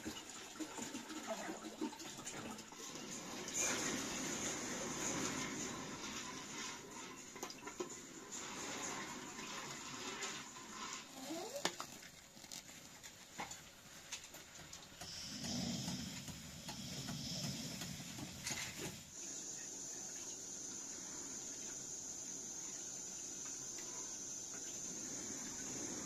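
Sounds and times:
gas burner hissing: 2.9s - 11.6s, 15.0s - 26.0s.

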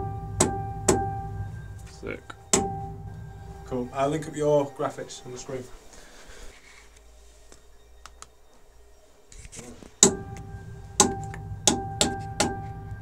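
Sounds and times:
electronic drum hits: 0.0s - 4.9s, 10.0s - 13.0s
low rumble with pitched drone: 0.0s - 8.0s, 9.6s - 13.0s
faint hum: 0.0s - 13.0s.

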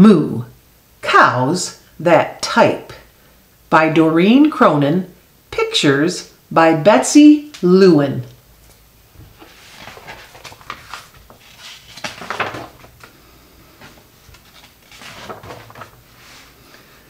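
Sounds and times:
book pages rustling: 8.6s - 16.8s.

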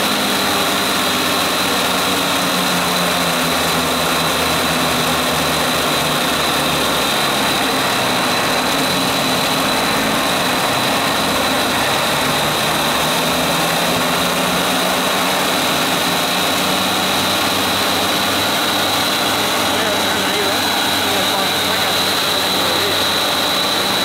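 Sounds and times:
model aircraft engines buzzing: 0.0s - 24.0s.

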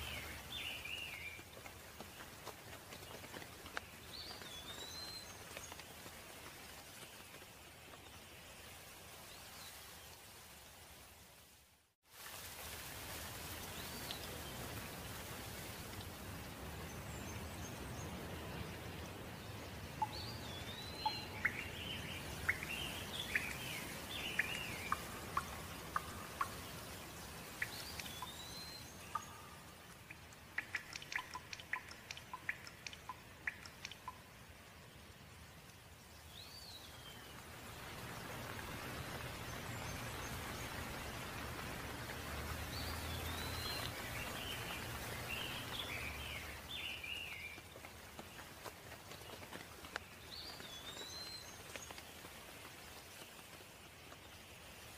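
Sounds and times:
small birds chirping: 0.0s - 10.1s, 16.6s - 54.9s
steady rain: 0.0s - 54.9s
close drops ticking: 29.1s - 34.2s.

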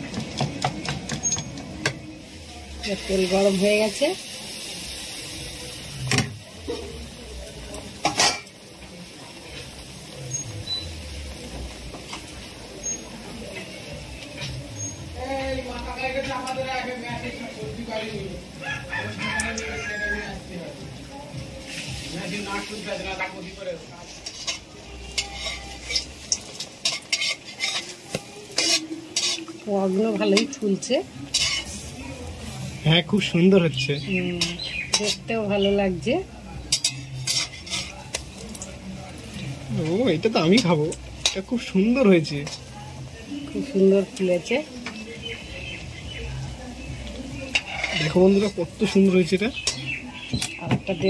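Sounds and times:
batter sizzling in hot oil: 0.0s - 51.0s
metal utensil clattering on pan: 8.0s - 8.6s, 24.1s - 29.6s, 31.3s - 31.8s, 34.4s - 35.3s, 36.6s - 38.2s, 39.9s - 41.6s, 47.5s - 48.6s, 49.6s - 49.9s.

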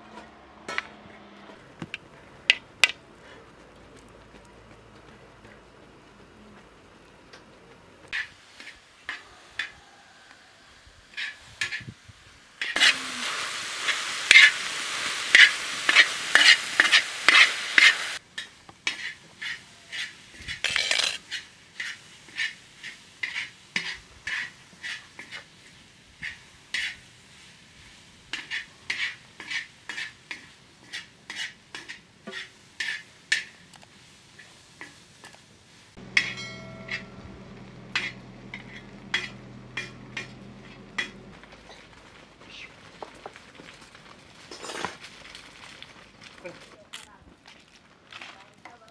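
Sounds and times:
spoon clinking on bowl rim: 36.1s - 37.2s.

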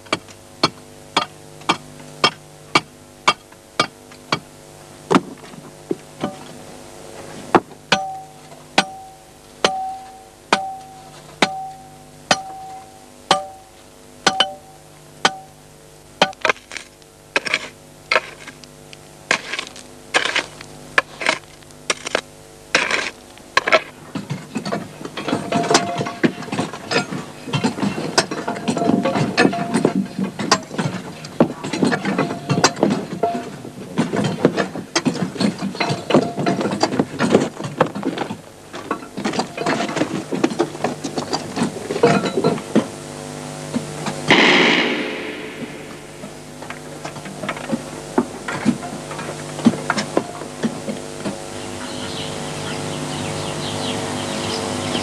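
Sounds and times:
pickaxes striking rock: 12.3s - 13.6s, 19.3s - 23.9s
low steady drone: 44.0s - 48.0s.

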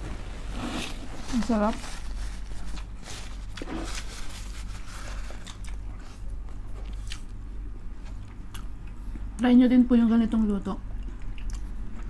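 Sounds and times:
low steady hum: 0.0s - 12.0s
wet chewing and mouth clicks: 5.3s - 7.4s, 8.0s - 9.4s, 10.9s - 12.0s.

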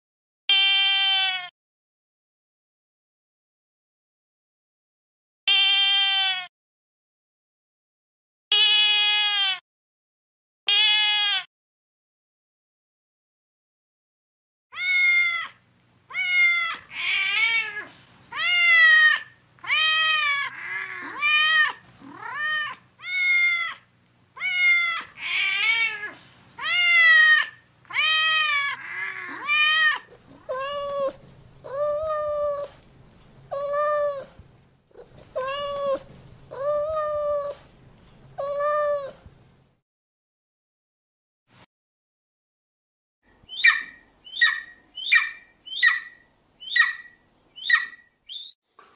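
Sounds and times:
cat meowing: 0.5s - 1.5s, 5.5s - 6.5s, 8.5s - 9.6s, 10.7s - 11.5s, 14.7s - 32.8s, 33.5s - 34.4s, 35.0s - 37.6s.

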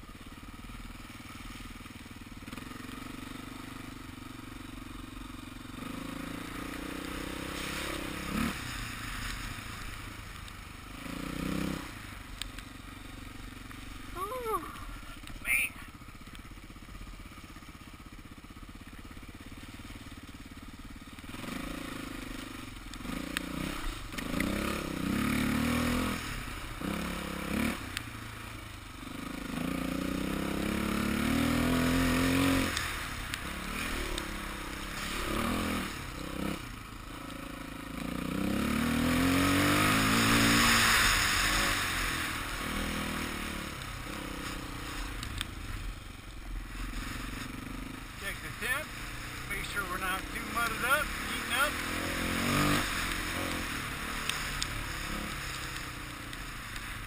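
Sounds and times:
dirt bike engine revving: 4.6s - 10.1s, 10.8s - 12.3s, 18.9s - 57.0s
rushing hiss: 39.8s - 43.5s.

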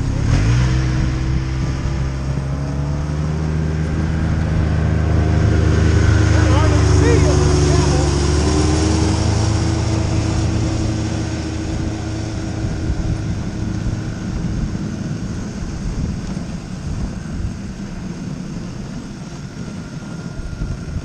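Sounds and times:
sled gliding over snow: 0.0s - 21.0s
snowmobile engine: 0.0s - 21.0s
wind: 0.0s - 21.0s.

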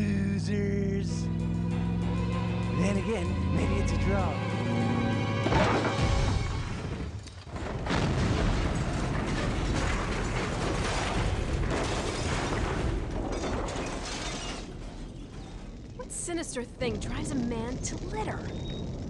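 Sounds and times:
metal crashing and clattering: 5.4s - 15.9s.

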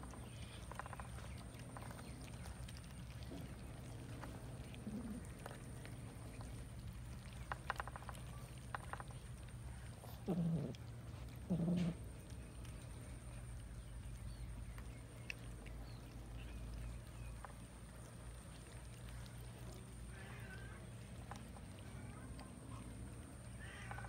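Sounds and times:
low-pitched animal calls: 9.9s - 12.1s, 23.5s - 24.0s.

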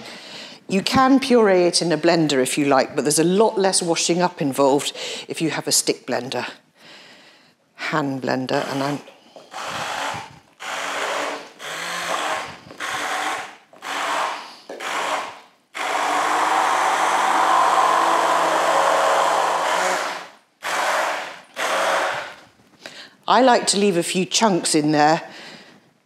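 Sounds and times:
stick blender pureeing soup: 8.4s - 22.4s.

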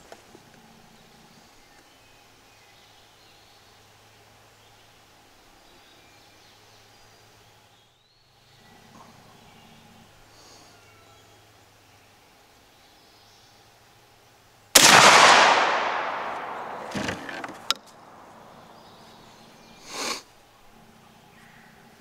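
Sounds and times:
shotgun blast with echo: 14.8s - 17.6s.

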